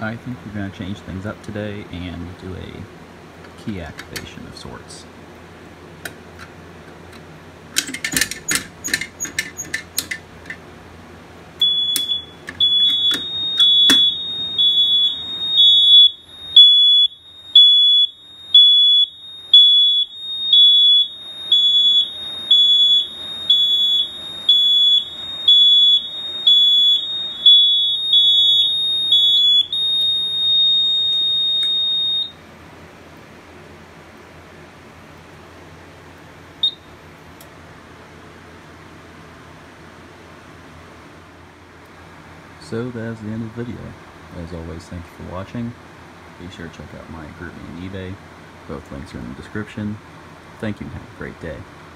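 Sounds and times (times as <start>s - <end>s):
pull station mechanical clicks: 3.4s - 4.4s, 6.0s - 10.6s, 11.9s - 14.3s
fire alarm horn: 11.6s - 32.4s, 36.6s - 37.0s.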